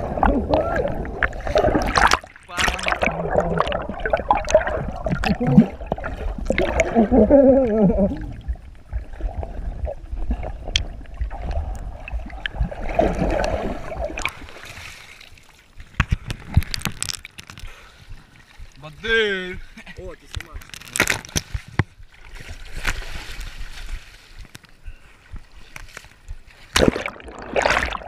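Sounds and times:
low underwater rumble: 0.0s - 20.7s
underwater rushing and bubbling: 0.0s - 28.0s.

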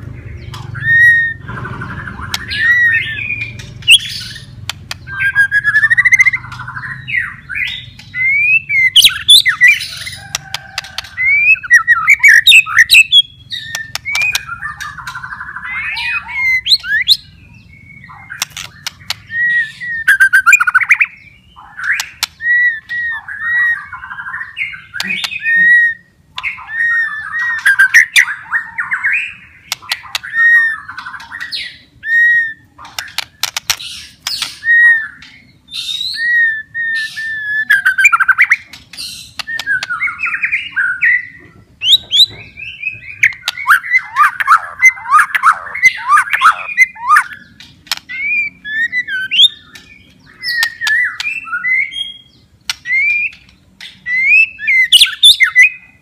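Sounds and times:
bird warbling: 0.0s - 56.0s
bird singing whistled notes: 0.3s - 33.2s, 33.9s - 56.0s
sharp clicks: 3.4s - 5.1s, 13.6s - 15.2s, 18.4s - 19.3s, 29.7s - 30.3s, 32.8s - 34.6s, 47.6s - 48.2s, 52.6s - 54.0s.

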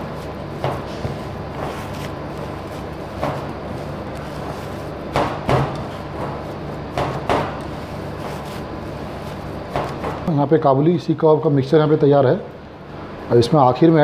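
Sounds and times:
hands kneading mashed food: 0.0s - 10.4s
steady hum: 0.0s - 14.0s.

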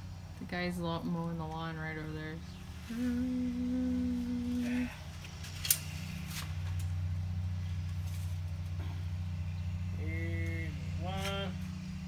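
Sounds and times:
distant lawn mower engine: 0.0s - 12.0s
person humming: 2.8s - 5.1s.

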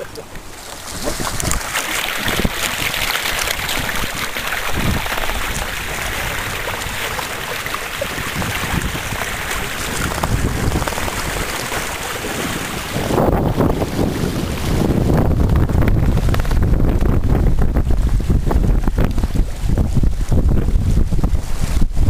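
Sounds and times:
water rushing along hull: 0.0s - 22.0s
wind buffeting microphone: 0.9s - 22.0s.

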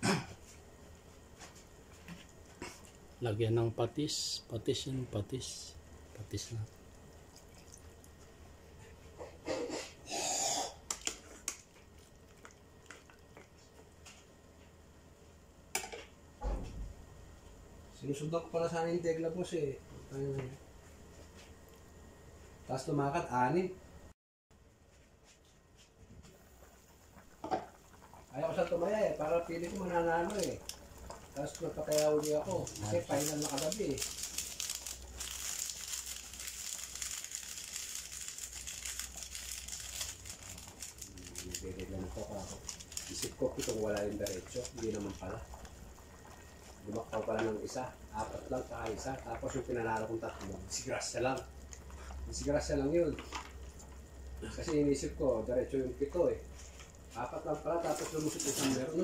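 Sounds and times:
plastic sachet crinkling: 29.3s - 45.8s
sachet tearing open: 31.4s - 45.2s.

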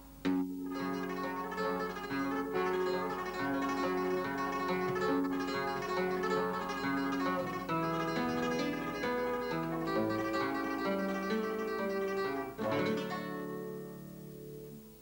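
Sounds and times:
solo flamenco guitar: 0.0s - 15.0s.

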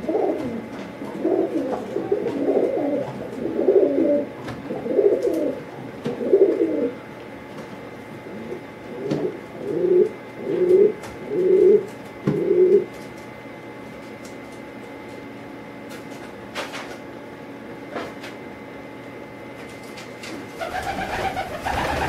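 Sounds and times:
pigeon cooing: 0.0s - 7.0s, 8.2s - 13.0s, 20.6s - 22.0s.

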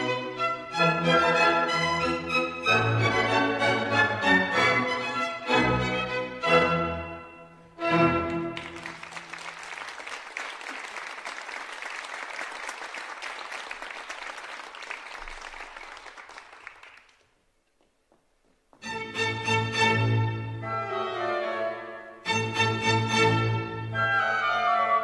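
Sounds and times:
orchestral chords: 0.0s - 8.8s
audience applauding: 8.2s - 17.4s.

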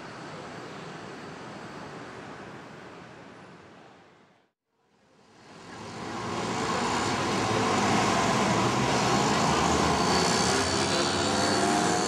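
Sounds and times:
city road traffic: 4.8s - 12.0s
bus driving past: 5.2s - 12.0s.

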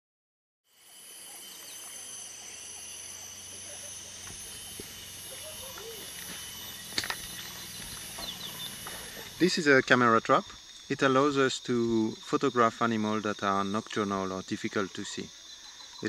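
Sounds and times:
insects singing: 0.7s - 16.0s.

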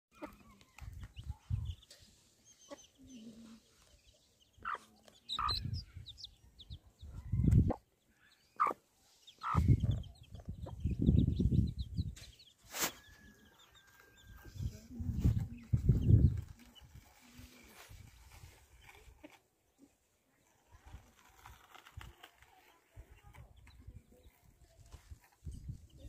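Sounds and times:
hen clucking: 0.1s - 1.8s, 2.5s - 3.7s, 4.5s - 7.9s, 8.5s - 12.0s
chicks peeping: 0.1s - 19.4s.

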